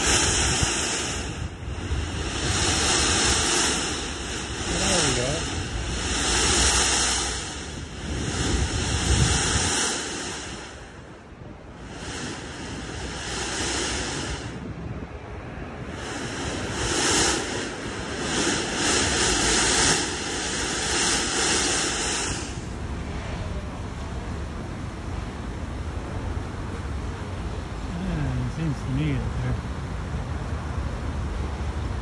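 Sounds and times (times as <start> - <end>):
mist jet hissing spray: 0.0 - 14.7, 15.7 - 22.8.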